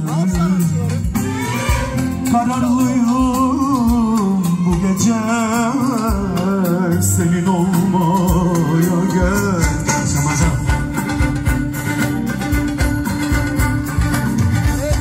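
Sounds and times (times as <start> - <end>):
man singing with vibrato: 0.0 - 11.9
drum hits: 0.0 - 15.0
keyboard: 0.0 - 15.0.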